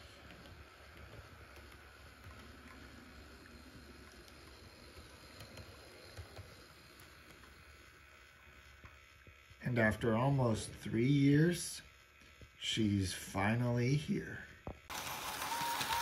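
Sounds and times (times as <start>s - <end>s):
model railcar running: 0.0s - 16.0s.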